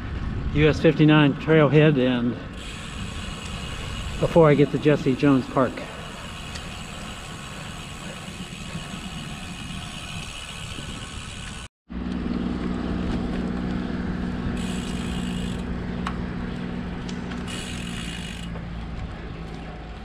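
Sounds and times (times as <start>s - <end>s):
wind rushing on microphone: 0.0s - 5.6s, 6.4s - 11.7s.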